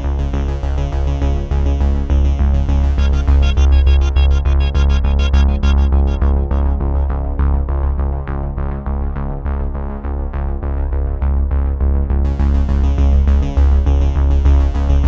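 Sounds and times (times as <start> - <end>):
electronic music with pulsing bass: 2.0 - 8.6
hissing high percussion: 3.0 - 7.1.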